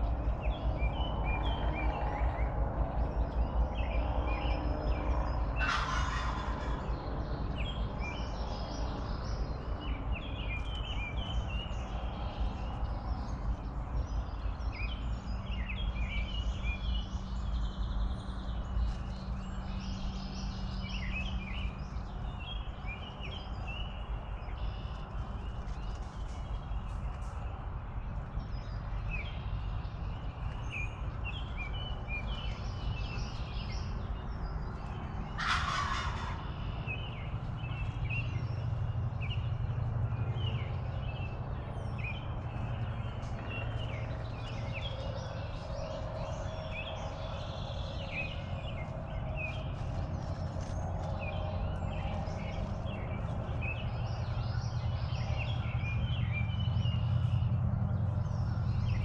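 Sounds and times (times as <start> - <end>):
songbird chirps: 0.0 - 59.0
turkey gobbling: 5.6 - 6.8, 35.4 - 36.5.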